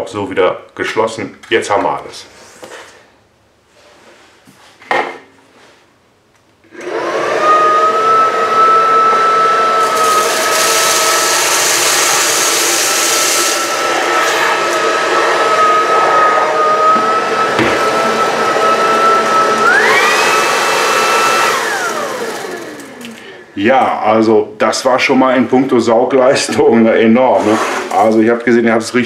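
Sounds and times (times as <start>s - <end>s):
stick vacuum motor whine: 6.7s - 23.6s
vacuum sucking up grains: 6.8s - 23.4s.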